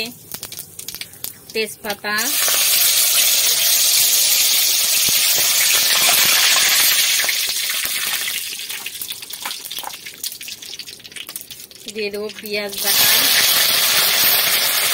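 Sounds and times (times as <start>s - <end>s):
spices sizzling in hot oil: 0.0s - 14.9s.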